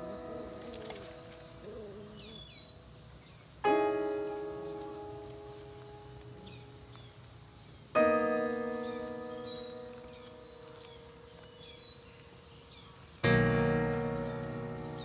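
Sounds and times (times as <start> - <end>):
piano chords ringing: 0.0 - 7.0, 7.8 - 12.1, 12.7 - 15.0
high insect drone: 0.0 - 15.0.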